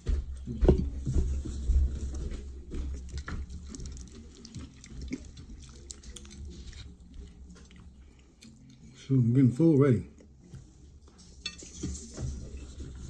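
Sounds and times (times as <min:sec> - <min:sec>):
chicken being torn apart: 0:03.1 - 0:08.9.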